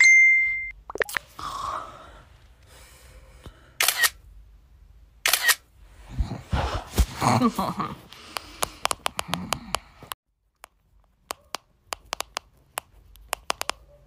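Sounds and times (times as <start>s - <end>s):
camera shutter clicks: 3.8s - 4.2s, 5.2s - 5.6s.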